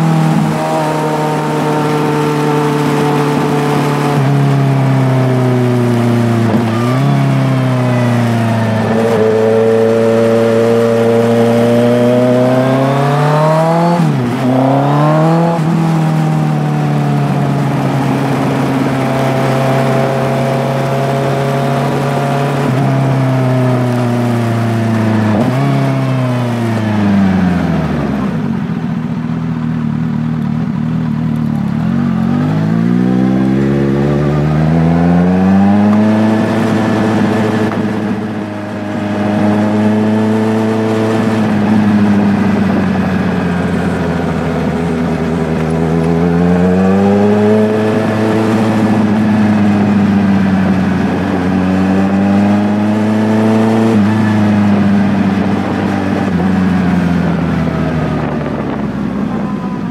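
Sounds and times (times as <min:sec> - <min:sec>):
engine revving: 0:00.0 - 0:28.6, 0:31.4 - 0:59.9.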